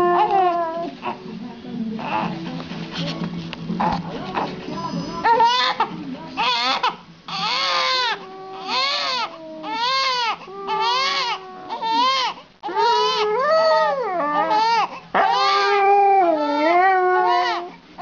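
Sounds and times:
baby crying: 0:00.0 - 0:01.2, 0:05.1 - 0:17.8.

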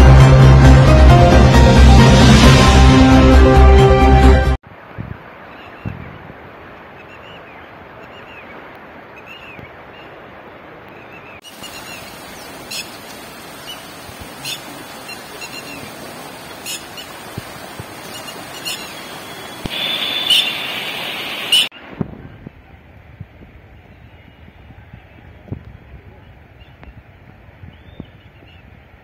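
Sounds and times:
steady outdoor noise: 0:04.6 - 0:29.0
high hiss: 0:11.5 - 0:21.7
bird chirps: 0:18.0 - 0:21.7.

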